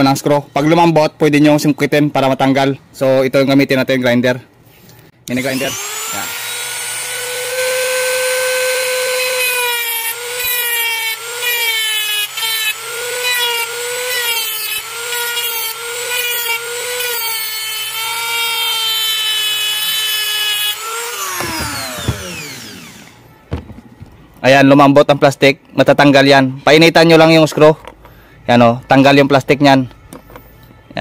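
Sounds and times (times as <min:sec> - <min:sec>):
rotary grinder whining: 0:05.3 - 0:23.3.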